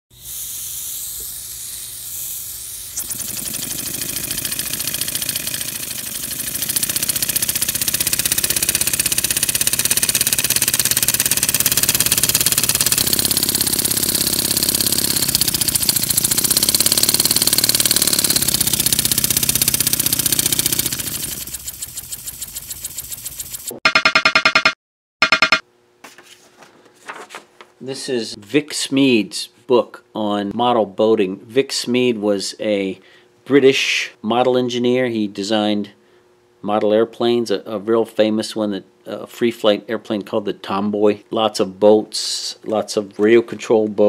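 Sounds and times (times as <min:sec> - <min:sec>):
model engine hissing exhaust puffs: 0:00.1 - 0:23.7.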